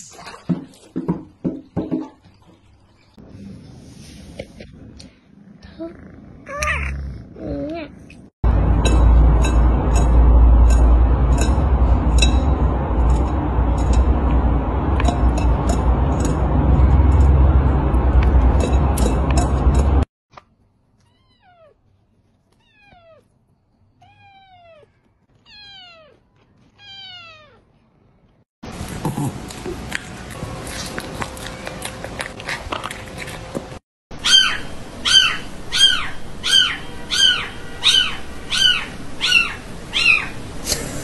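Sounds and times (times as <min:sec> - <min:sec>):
kitten eating with rumbling clicks: 0:08.4 - 0:21.2, 0:28.7 - 0:33.8.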